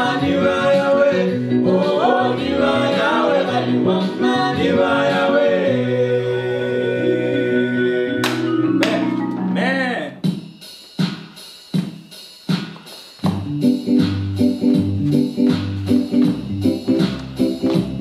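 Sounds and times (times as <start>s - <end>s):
vocal group singing in harmony: 0.0s - 9.2s
low keyboard notes: 6.8s - 10.2s, 13.3s - 18.0s.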